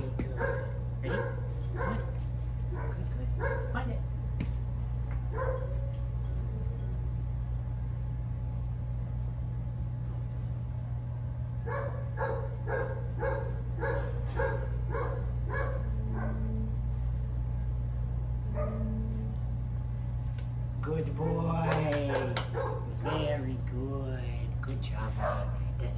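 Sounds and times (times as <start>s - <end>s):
steady low hum: 0.0s - 25.9s
dog barking: 0.4s - 3.9s, 5.3s - 5.8s, 11.6s - 16.5s, 18.5s - 18.9s, 21.7s - 23.2s, 25.2s - 25.6s.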